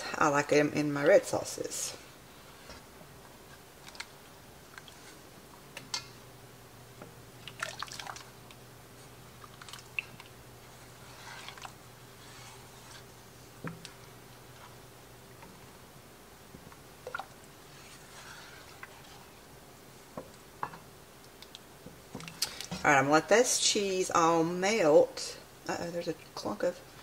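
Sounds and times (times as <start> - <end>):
faint steady hum: 0.0 - 27.0
spoon stirring thick sauce: 7.4 - 14.8, 16.7 - 20.4.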